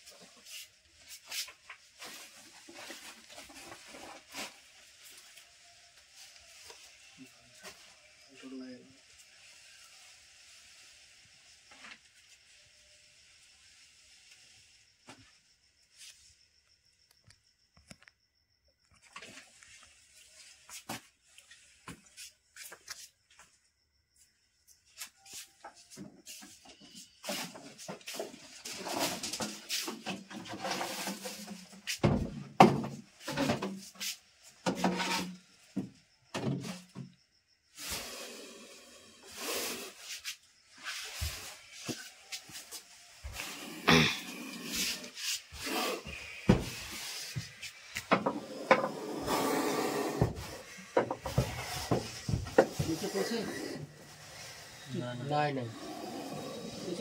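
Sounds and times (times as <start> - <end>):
objects knocking and scraping: 25.6 - 34.0, 34.6 - 37.1, 40.8 - 49.5, 50.1 - 54.4.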